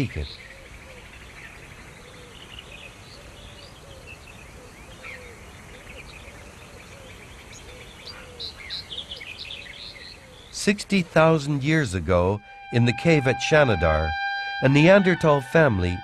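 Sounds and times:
birds chirping: 0:00.0 - 0:16.0
low rising and falling note: 0:12.2 - 0:16.0.

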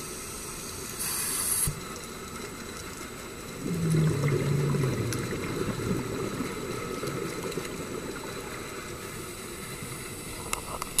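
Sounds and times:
underwater bubbling of exhaled air: 0:03.4 - 0:11.0.

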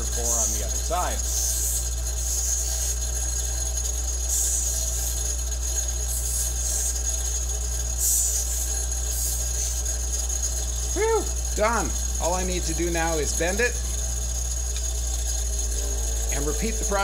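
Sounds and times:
metal pressed on grinding wheel hiss: 0:00.0 - 0:10.6, 0:15.2 - 0:17.0
bench grinder motor humming: 0:00.0 - 0:17.0.

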